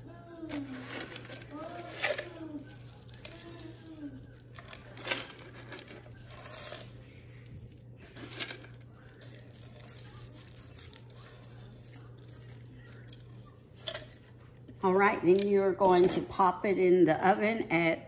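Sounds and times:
fried onions rustling and crunching: 0.5s - 14.8s.

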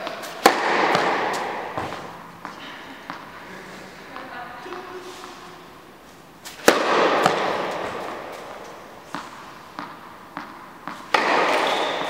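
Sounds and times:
ball bouncing on hard court: 0.0s - 3.3s, 6.5s - 12.0s
racket striking tennis ball: 0.0s - 3.3s, 6.4s - 12.0s.

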